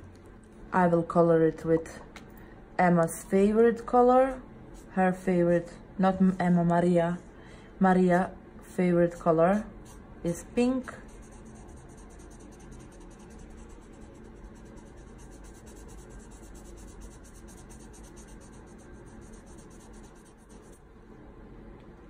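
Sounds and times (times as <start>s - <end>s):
marker scribbling on paper: 8.8s - 20.8s.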